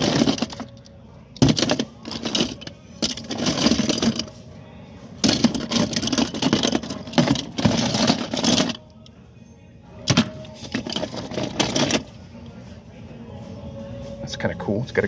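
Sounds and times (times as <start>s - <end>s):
toy cars clattering in bin: 0.0s - 0.8s, 1.4s - 4.3s, 5.2s - 8.8s, 10.1s - 12.1s.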